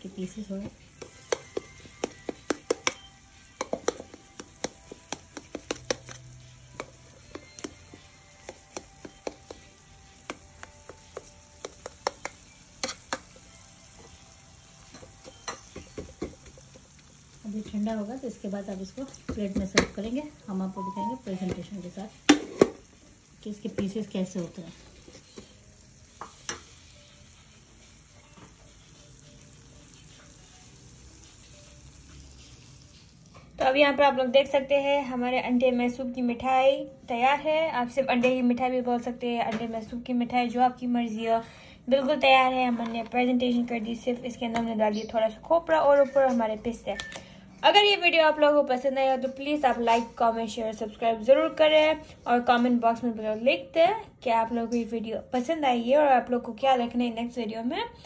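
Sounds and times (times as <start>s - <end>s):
knife tapping on metal tray: 3.6s - 6.2s.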